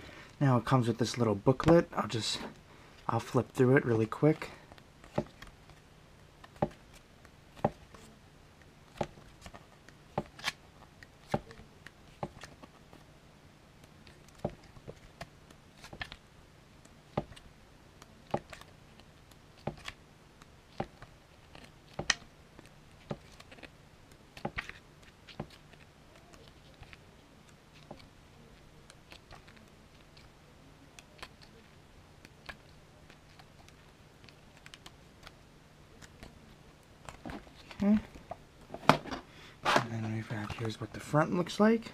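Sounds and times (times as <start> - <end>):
faint low hum: 0.0 - 41.9
pages turning: 8.9 - 13.0.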